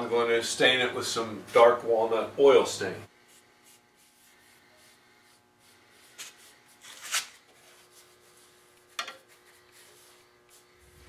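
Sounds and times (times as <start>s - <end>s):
brush strokes on wood: 3.1s - 6.8s, 7.5s - 11.0s.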